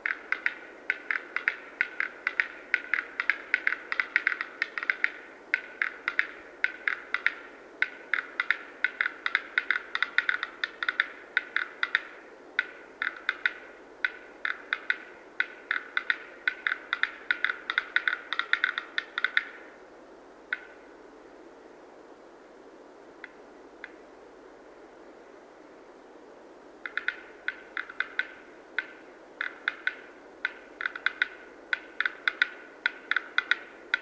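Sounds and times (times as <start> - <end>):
bird display song clicks: 0.0 - 19.6, 26.8 - 34.0.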